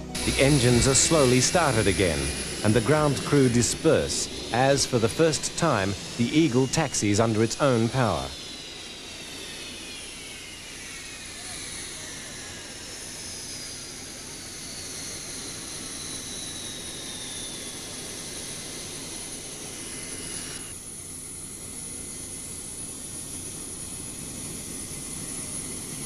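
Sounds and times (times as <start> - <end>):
jet engines running: 0.0 - 26.0.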